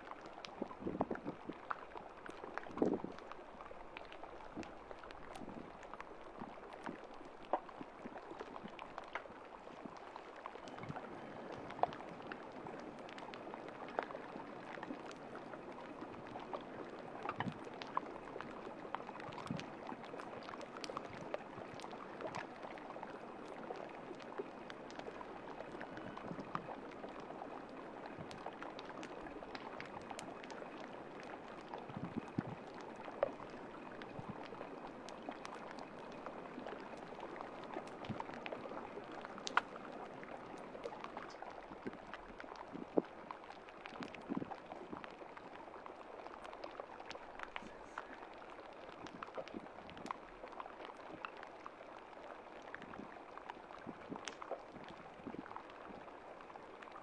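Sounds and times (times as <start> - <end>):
small clicks and pops of ice: 0.0 - 57.0
water lapping among ice: 0.0 - 57.0.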